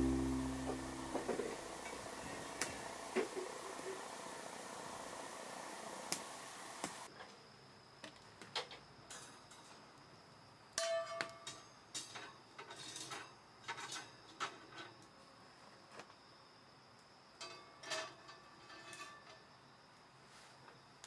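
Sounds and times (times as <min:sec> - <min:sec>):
wood fire crackling: 0:00.0 - 0:07.1.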